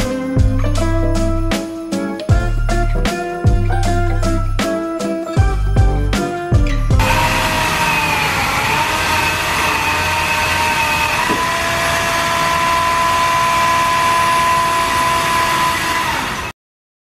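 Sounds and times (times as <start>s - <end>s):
machine motor whining: 7.0s - 16.6s.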